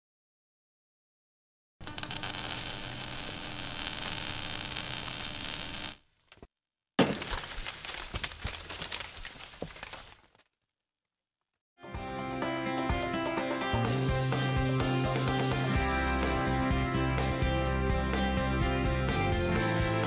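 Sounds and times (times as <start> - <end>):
loud crackling hiss: 1.8 - 6.0.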